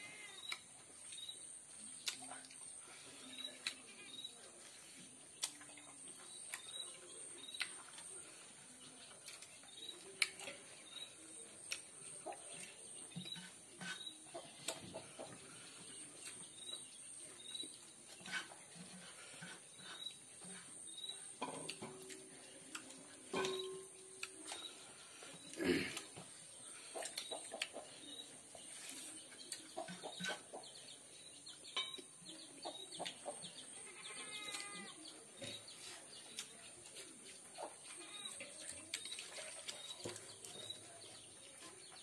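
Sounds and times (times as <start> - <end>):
small birds chirping: 0.0 - 42.0
person chewing: 1.9 - 2.7.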